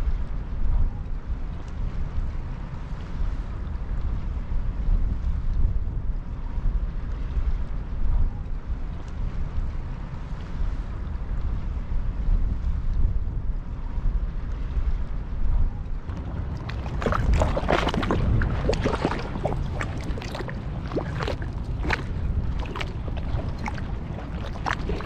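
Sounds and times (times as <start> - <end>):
wind buffeting microphone: 10.6 - 25.0
waves lapping on rocks: 16.1 - 25.0.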